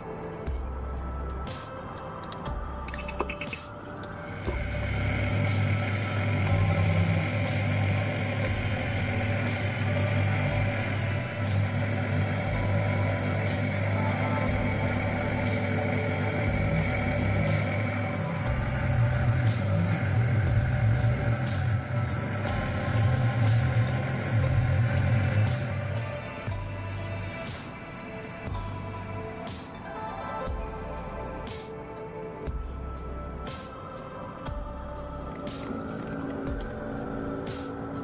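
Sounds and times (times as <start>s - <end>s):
blender motor grinding: 4.2s - 26.3s.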